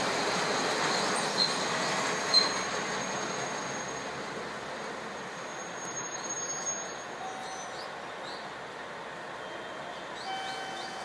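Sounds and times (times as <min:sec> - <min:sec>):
train running noise: 0:00.0 - 0:11.0
thin steady high squeal: 0:05.2 - 0:07.7
brief high squeals: 0:05.5 - 0:07.1.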